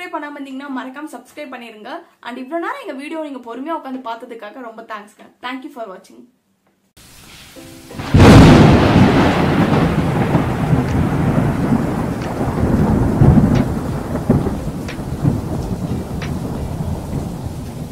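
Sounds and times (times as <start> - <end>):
rain hiss: 7.0 - 17.9
thunderclap and rolling thunder: 8.0 - 17.9
faint ticks: 13.5 - 13.8, 16.2 - 16.5.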